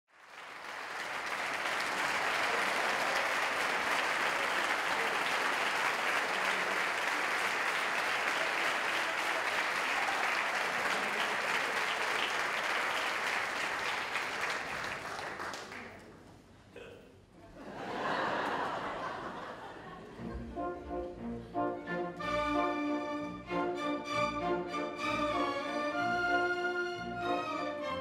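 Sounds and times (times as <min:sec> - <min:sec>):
audience applauding: 0:00.1 - 0:16.3, 0:17.7 - 0:19.8.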